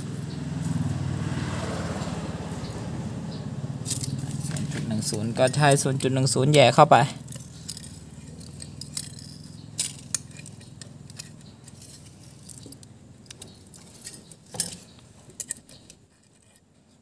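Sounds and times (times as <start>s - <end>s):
metal hand tools clinking: 3.8s - 16.7s.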